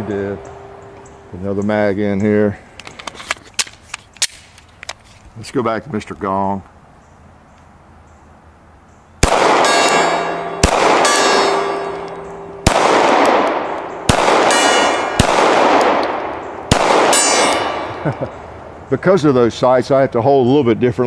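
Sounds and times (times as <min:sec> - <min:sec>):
pistol shots: 0:09.2 - 0:18.1.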